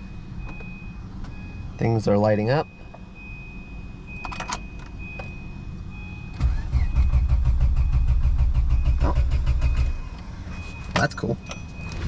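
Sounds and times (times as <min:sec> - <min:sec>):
high-pitched warning beep: 0:00.0 - 0:12.0
car engine cranking: 0:06.3 - 0:12.0.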